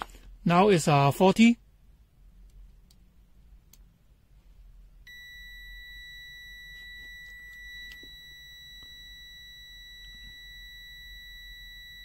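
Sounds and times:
multimeter continuity beep: 5.1 - 12.0.

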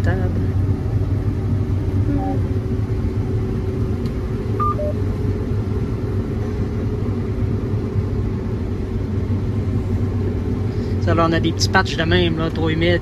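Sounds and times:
combine harvester engine drone: 0.0 - 13.0
two-note beep: 4.6 - 5.0.

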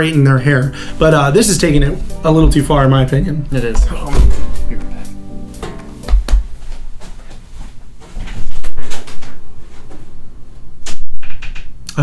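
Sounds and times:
objects being handled and moved: 5.6 - 11.2.

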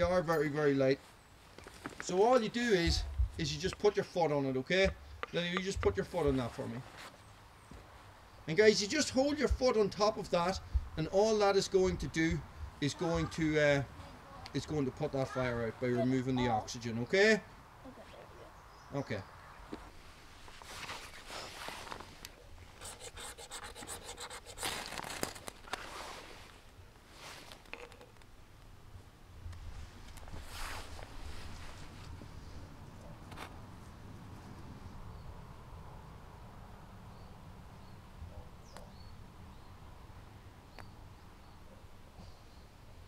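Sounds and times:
scraping and rubbing: 20.4 - 22.2, 22.8 - 26.6
quick scratches: 22.8 - 26.4.

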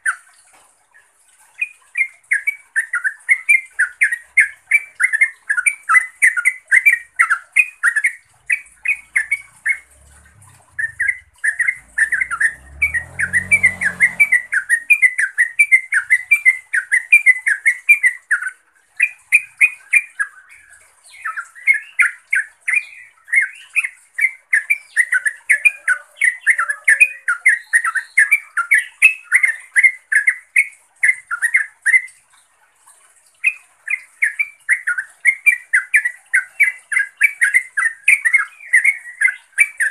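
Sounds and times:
bulbul chattering call: 2.2 - 20.3.

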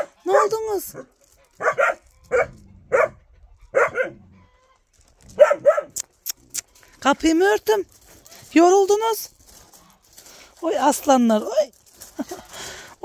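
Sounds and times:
puppies barking: 0.0 - 4.6, 5.4 - 6.0.

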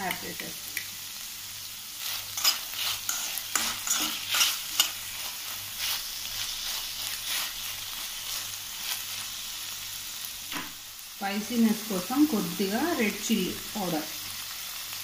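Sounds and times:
vegetables sizzling in a pan: 0.0 - 15.0
spoon scraping metal pan: 2.0 - 6.0.

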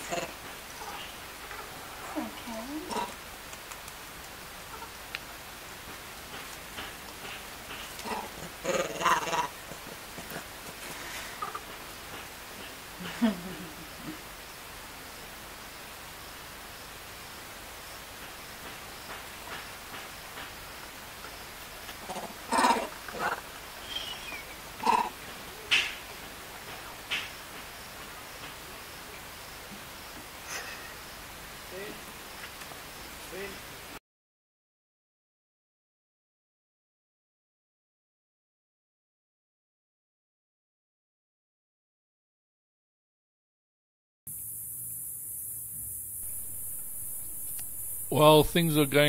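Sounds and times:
monkey call: 0.0 - 3.2, 8.0 - 10.5, 11.3 - 11.8, 22.0 - 26.0
faint hiss: 0.0 - 34.0, 44.3 - 49.0
small clicks: 3.5 - 4.4
faint falling chirp: 23.8 - 24.6.

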